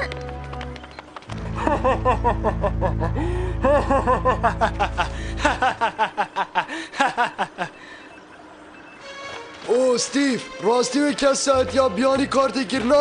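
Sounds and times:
low music drone: 0.0 - 7.7
cartoon character laughing: 1.6 - 7.7.

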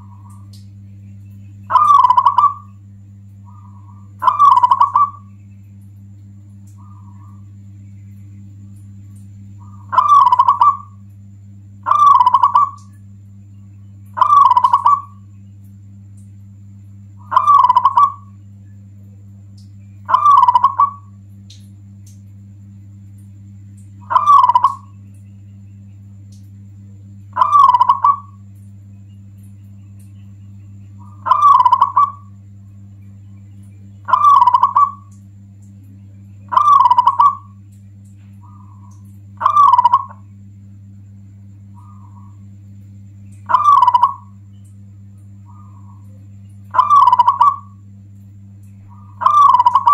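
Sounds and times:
dove cooing: 0.0 - 0.5, 1.6 - 5.4, 6.7 - 7.6, 9.6 - 11.1, 11.8 - 12.9, 14.0 - 15.3, 17.2 - 18.4, 20.0 - 21.2, 24.0 - 25.0, 27.3 - 28.5, 30.7 - 32.8, 34.0 - 35.2, 36.3 - 37.6, 38.4 - 40.4, 41.6 - 42.5, 43.3 - 44.4, 45.4 - 47.8, 48.8 - 49.9
low hum: 0.0 - 49.9.

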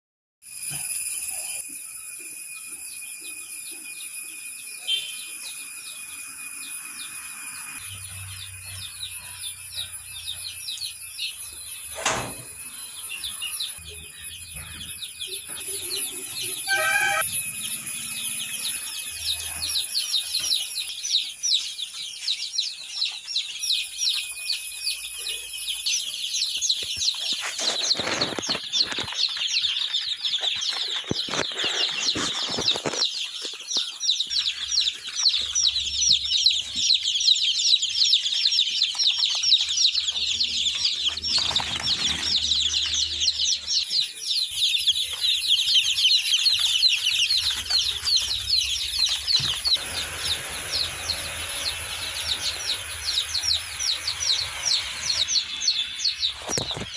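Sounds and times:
chicks peeping: 0.7 - 56.9
rustling: 45.0 - 50.4.

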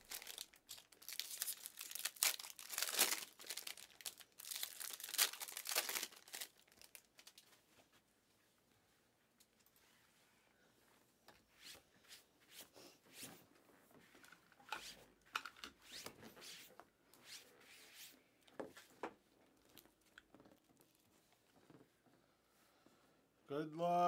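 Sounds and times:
trading cards rustling: 0.0 - 7.4.

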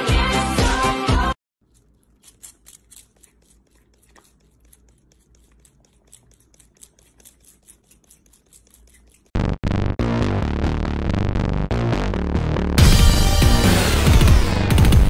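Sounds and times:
comb scratching through fur: 1.6 - 9.4.

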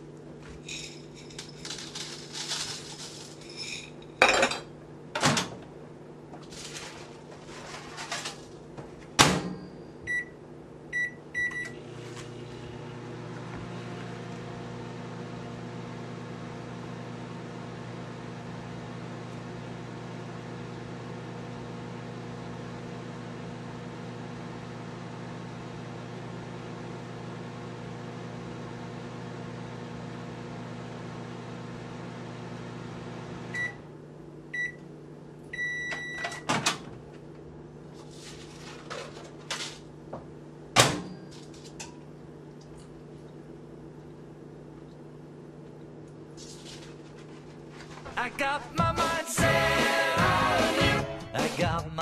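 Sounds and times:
microwave oven humming: 0.0 - 52.0
microwave beeps: 9.5 - 11.9, 33.5 - 33.9, 34.5 - 34.9, 35.5 - 36.5.

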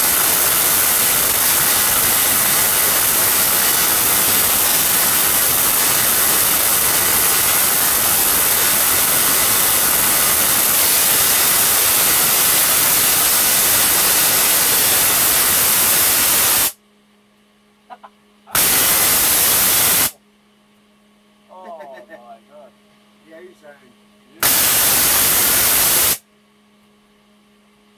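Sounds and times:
tesla coil spark hiss: 0.0 - 16.8, 18.5 - 20.2, 24.4 - 26.2
faint hum: 16.7 - 24.7.

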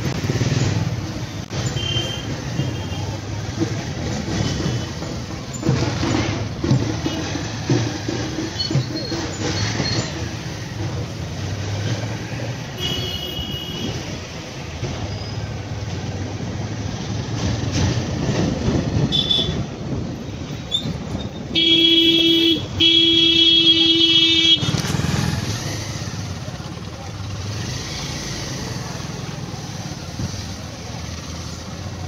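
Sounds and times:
motorcycles passing: 0.0 - 32.0
street traffic: 0.0 - 32.0
vehicle horns: 1.6 - 3.3, 12.7 - 14.2, 19.0 - 19.7, 21.4 - 25.2.

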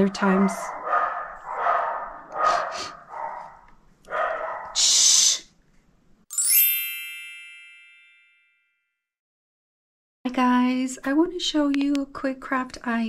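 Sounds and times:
bright chime: 6.3 - 8.8.

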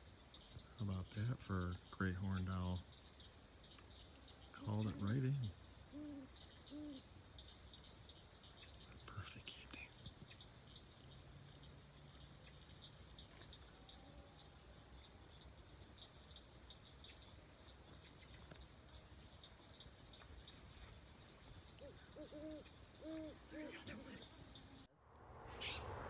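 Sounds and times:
insect chorus trilling: 0.0 - 24.9
low hoots: 4.6 - 7.1, 21.8 - 24.7.

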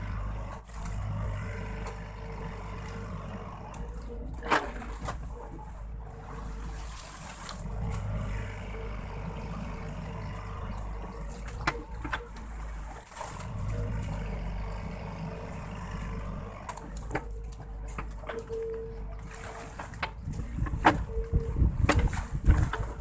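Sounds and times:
excavator diesel engine working: 0.0 - 23.0.

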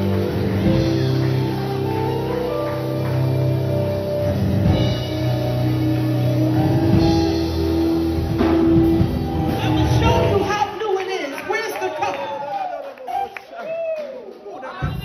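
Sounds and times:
long held instrumental notes: 0.0 - 10.8.

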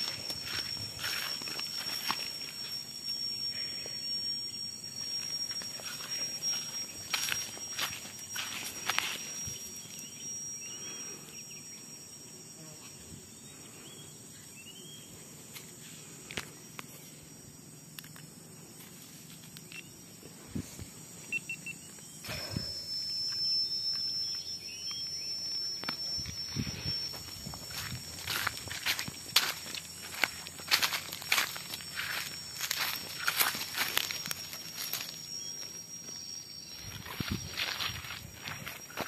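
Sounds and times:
footsteps on dry leaves: 0.0 - 2.7, 5.2 - 10.0, 26.3 - 35.7, 36.7 - 39.0
insects droning: 0.0 - 39.0
bird chirps: 21.3 - 27.7.

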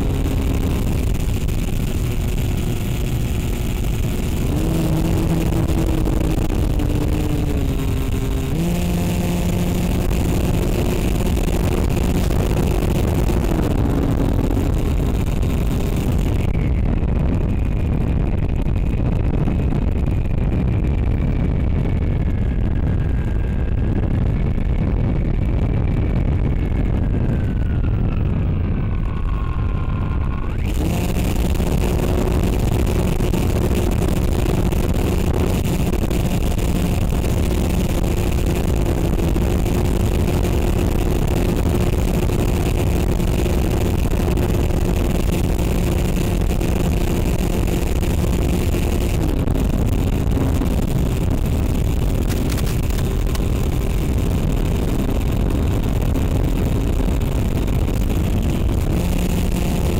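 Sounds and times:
model aircraft motor droning: 0.0 - 16.3, 28.7 - 55.9, 56.8 - 59.9.

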